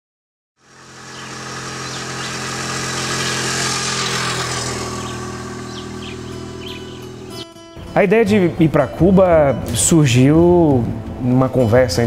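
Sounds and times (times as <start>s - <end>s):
low engine hum: 0.6s - 7.6s
bird chirps: 1.0s - 7.6s.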